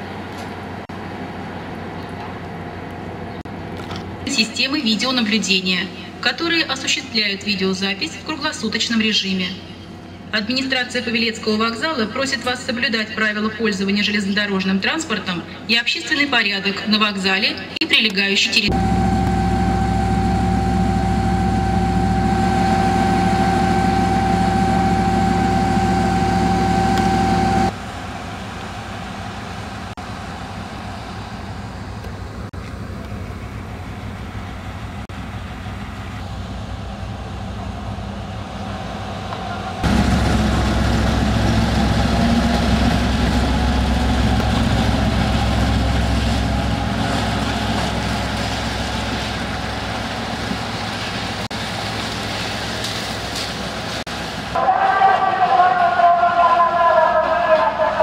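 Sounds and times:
diesel locomotive engine running: 0.0s - 7.9s, 18.6s - 58.0s
steady whine: 18.6s - 51.5s.

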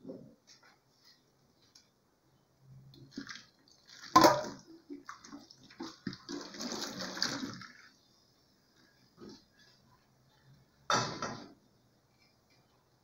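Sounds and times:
water pouring into sink: 3.0s - 7.9s.

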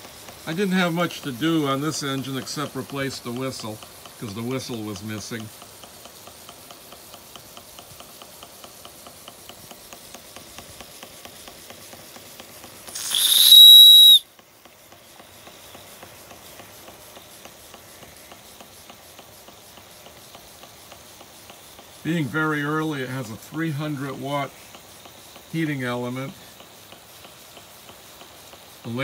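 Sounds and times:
steam hissing: 0.0s - 29.0s
toy steam engine beating: 0.0s - 29.0s
high-pitched steam whistle: 12.9s - 14.3s.

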